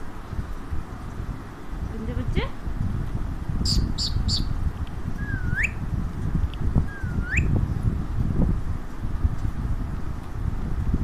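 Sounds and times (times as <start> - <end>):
steady low rumble: 0.0 - 11.0
parakeet upward sweeping whistles: 3.6 - 4.5, 5.2 - 5.8, 6.9 - 7.5
parakeet chirps: 3.6 - 4.6, 5.2 - 5.8, 6.9 - 7.5.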